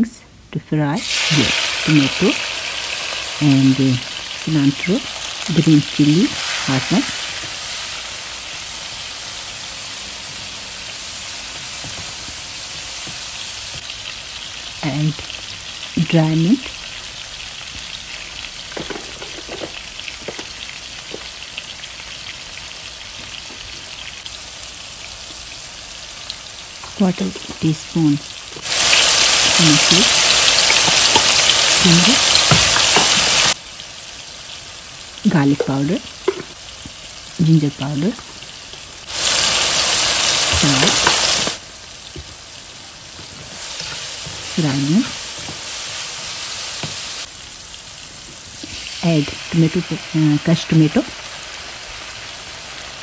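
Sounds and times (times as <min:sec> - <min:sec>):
vegetables sizzling in oil: 0:00.9 - 0:53.0.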